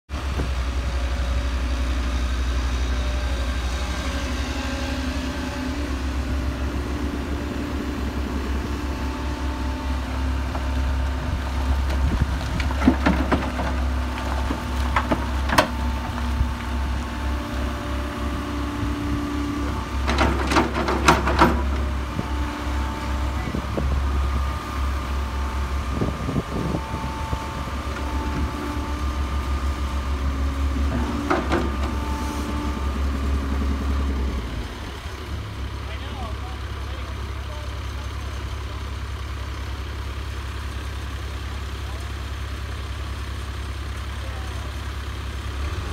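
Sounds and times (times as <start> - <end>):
diesel engines rumbling: 0.1 - 45.9.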